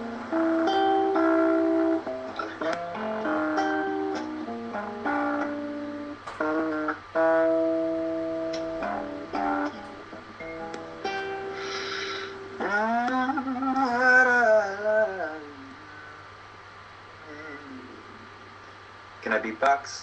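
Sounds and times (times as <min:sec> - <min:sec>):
acoustic guitar strumming: 0:00.0 - 0:15.3.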